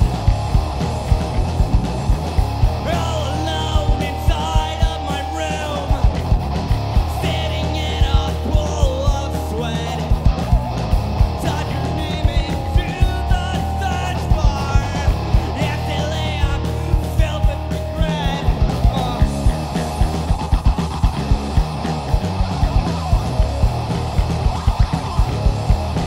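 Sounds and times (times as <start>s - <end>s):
alternative rock song: 0.0s - 26.0s
distorted electric guitars: 0.0s - 26.0s
drum beat: 0.0s - 26.0s
man singing: 2.8s - 6.2s, 7.1s - 10.3s, 11.4s - 19.9s.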